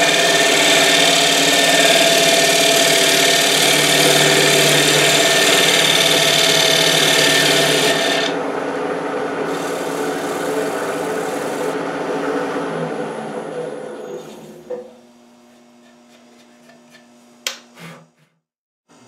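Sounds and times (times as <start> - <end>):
scraper cutting spinning wood: 0.0 - 8.4, 9.5 - 11.8
lathe motor hum: 0.0 - 13.9.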